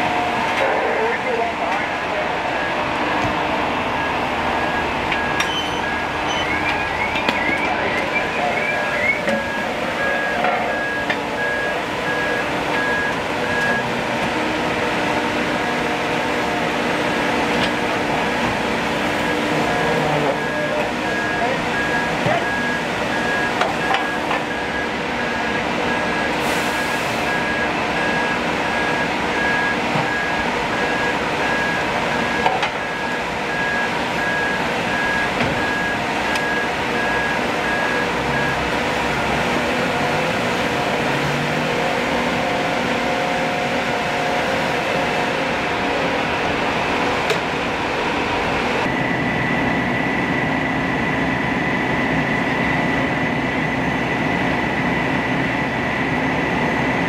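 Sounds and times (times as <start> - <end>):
steady high whine: 0.0 - 14.3, 15.1 - 57.0
fire engine running: 0.0 - 57.0
electronic beep: 4.0 - 13.8.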